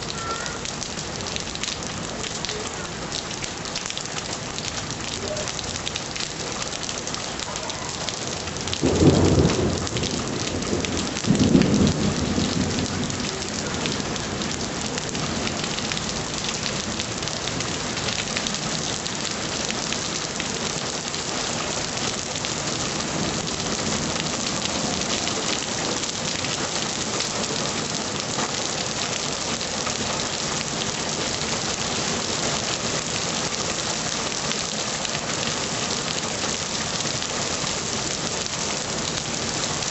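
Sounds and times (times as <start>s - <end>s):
heavy rain pouring: 0.0s - 39.9s
thunder rumbling: 8.6s - 16.0s.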